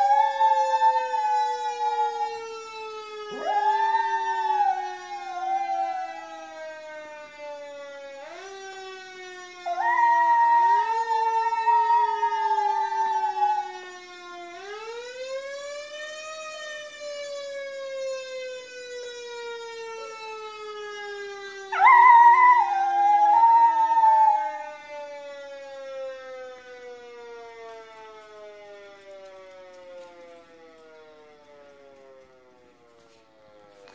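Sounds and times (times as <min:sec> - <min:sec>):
siren wailing: 0:00.0 - 0:33.9
dog howling: 0:03.3 - 0:05.9, 0:09.7 - 0:13.7, 0:21.8 - 0:24.5.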